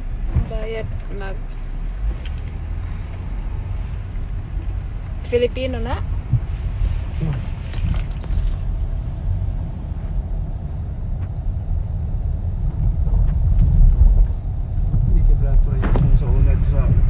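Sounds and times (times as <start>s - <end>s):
car engine and tyres rumbling: 0.0s - 17.0s
light jingling and clicking: 0.9s - 2.8s, 7.1s - 8.9s.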